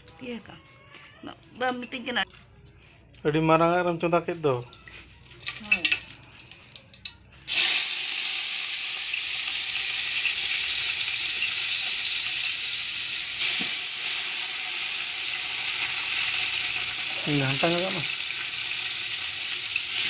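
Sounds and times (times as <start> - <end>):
loud sizzling hiss from cooking pot: 7.5 - 20.0.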